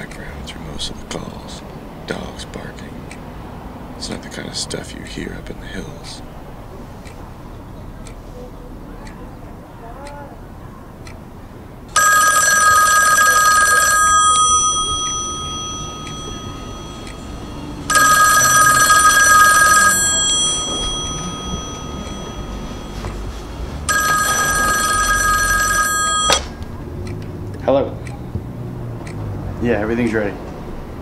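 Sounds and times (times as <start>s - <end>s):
telephone ringing: 12.0s - 26.6s
phone pickup click: 23.9s - 26.6s.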